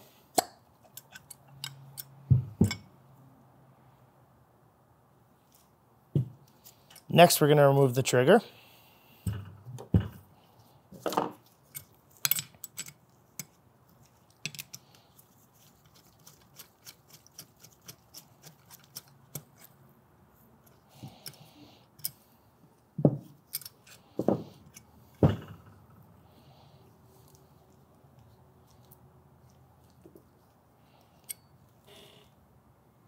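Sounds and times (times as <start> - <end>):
small metal clicks and knocks: 0.4 - 2.9, 11.0 - 15.0.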